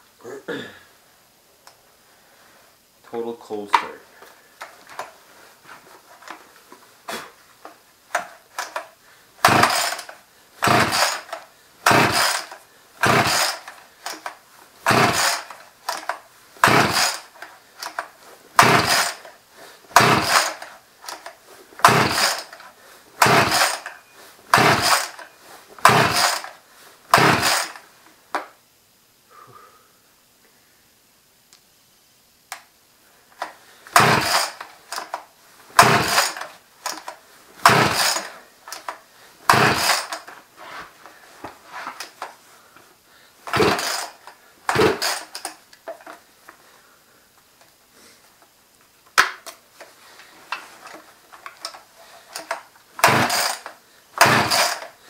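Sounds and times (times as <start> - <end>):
chainsaw starter cord pulls: 8.1 - 27.8, 33.4 - 40.4, 43.4 - 46.2, 50.8 - 55.0
engine turning over: 9.4 - 18.0, 18.6 - 19.3, 19.9 - 22.6, 23.2 - 27.8, 33.9 - 35.2, 35.8 - 38.9, 39.5 - 40.3, 43.4 - 45.5, 51.6 - 55.0.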